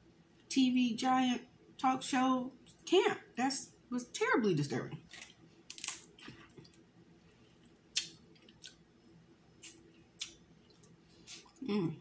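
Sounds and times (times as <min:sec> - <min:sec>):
crab shells cracking: 0:05.2 - 0:06.2.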